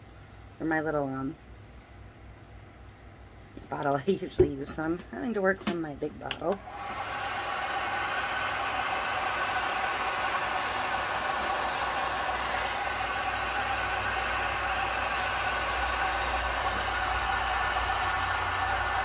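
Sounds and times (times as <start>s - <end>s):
heat gun fan whining: 6.2s - 19.0s.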